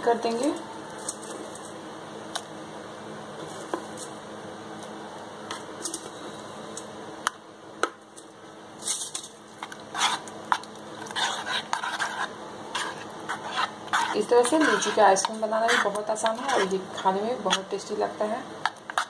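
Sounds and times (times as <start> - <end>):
spoon scraping pan: 9.6 - 17.8, 18.6 - 19.0.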